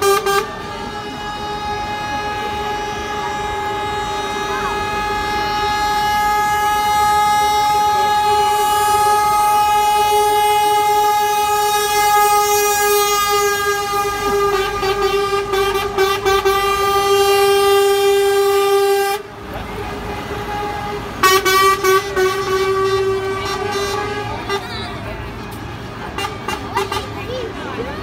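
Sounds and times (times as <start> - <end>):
lorry air horn: 0.0 - 19.3, 20.4 - 24.6.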